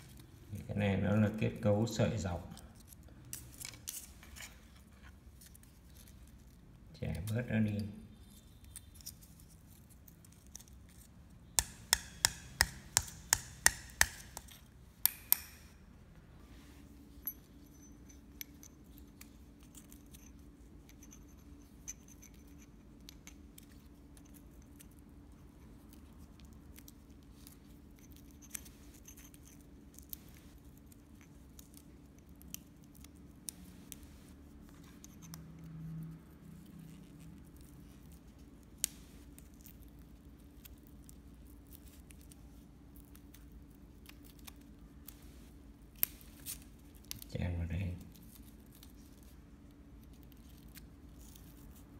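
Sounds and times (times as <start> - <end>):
faint steady hum: 0.0 - 51.9
small clicks and scratches: 2.4 - 14.7, 17.2 - 47.4, 48.0 - 51.9
fibreglass tube snapping: 11.6 - 15.8.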